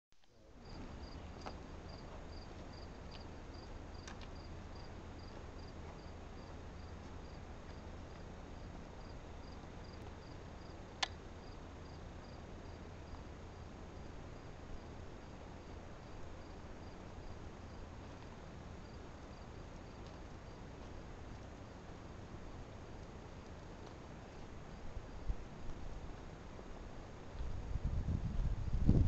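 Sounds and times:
low steady rumble: 0.2 - 29.0
cricket chirping: 0.6 - 7.8, 8.6 - 17.9, 18.8 - 20.7.

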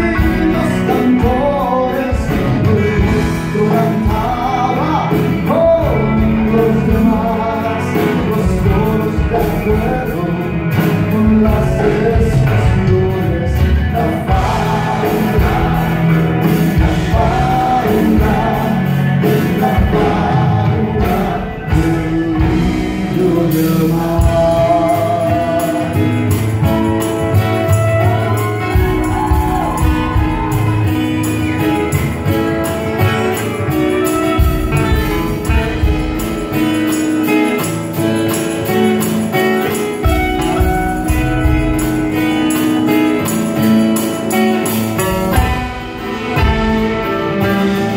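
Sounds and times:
acoustic guitars strumming: 0.0 - 47.9
drums: 0.0 - 47.9
keyboard: 0.0 - 47.9
melodic lead line: 0.0 - 47.9.

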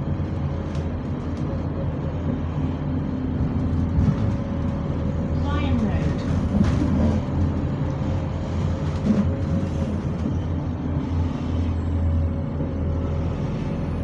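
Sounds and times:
bus engine rumbling: 0.0 - 14.0.

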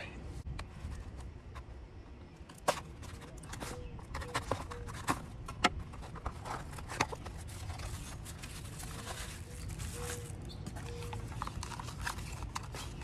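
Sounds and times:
cardboard rustling: 2.6 - 13.0.

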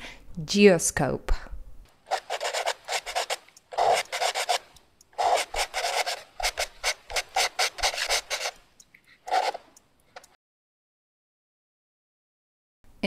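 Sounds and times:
pen writing on paper: 2.1 - 8.6, 9.3 - 9.7.

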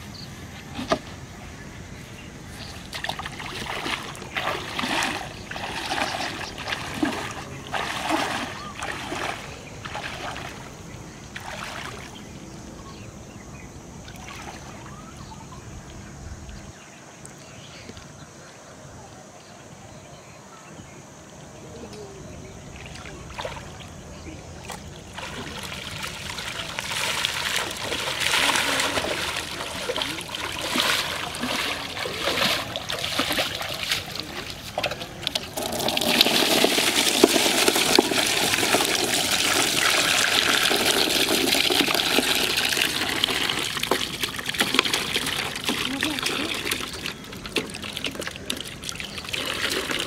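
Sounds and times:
water splashing off pipe: 2.9 - 10.7, 24.7 - 50.0
water stream pouring into tub: 3.0 - 10.6, 25.1 - 50.0.

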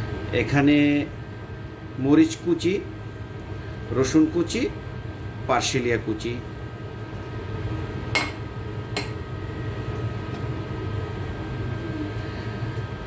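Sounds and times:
ventilation hum: 0.0 - 13.0
dishes clinking: 8.2 - 8.4.

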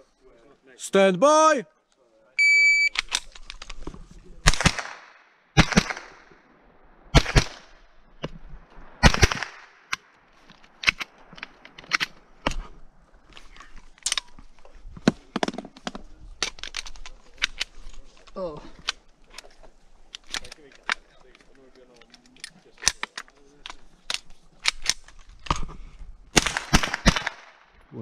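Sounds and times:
rifle shots: 4.4 - 6.3, 7.1 - 7.8, 9.0 - 10.0, 26.3 - 27.6.

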